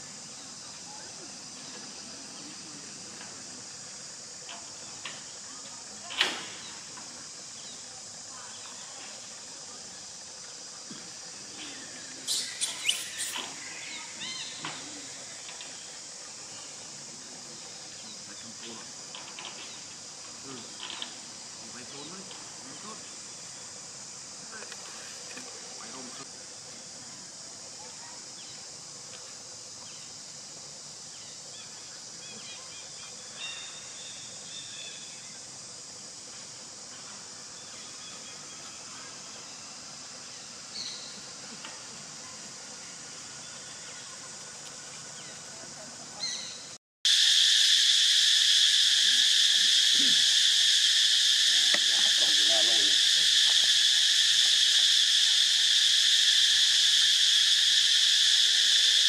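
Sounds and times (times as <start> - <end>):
high-pitched hiss: 0.0 - 59.0
high-pitched insect drone: 0.0 - 59.0
monkey chirps: 12.2 - 14.6
monkeys squealing: 12.3 - 14.6.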